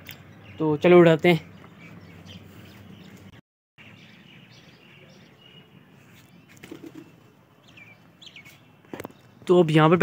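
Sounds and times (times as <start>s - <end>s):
pigeon wings flapping: 6.5s - 7.1s.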